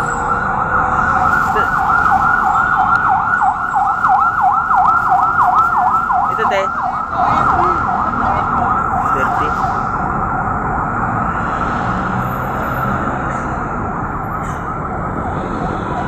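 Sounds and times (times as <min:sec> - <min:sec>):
electronic siren yelping: 0:00.0 - 0:10.1.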